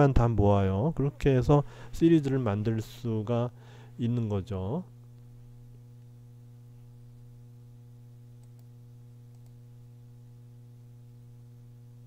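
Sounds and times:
electrical mains hum: 0:00.0 - 0:12.0
faint clicks: 0:08.4 - 0:08.7, 0:09.3 - 0:09.6.

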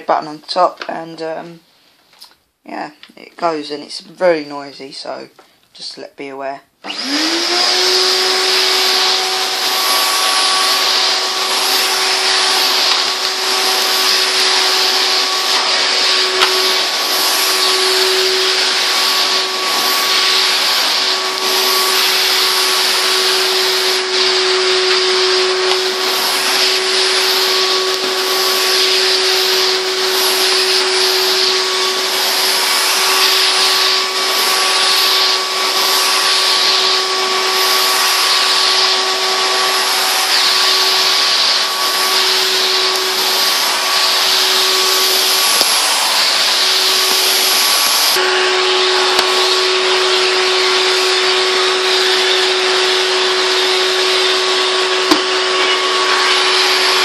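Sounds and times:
vacuum cleaner running: 0:06.8 - 0:57.0.

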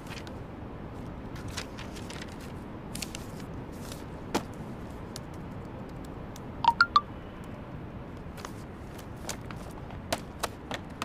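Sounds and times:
papers and plastic folder rustling: 0:01.4 - 0:04.5
phone notification chime: 0:06.6 - 0:07.1.

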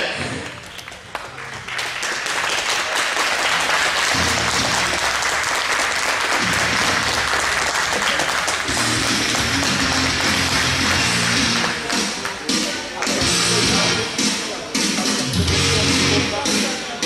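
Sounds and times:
audience applauding: 0:00.4 - 0:13.3
music with bass line: 0:04.0 - 0:05.3, 0:06.3 - 0:16.8.

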